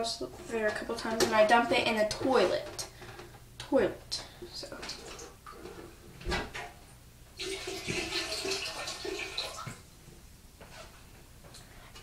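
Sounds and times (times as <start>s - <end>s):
water splashing into toilet bowl: 7.4s - 9.8s.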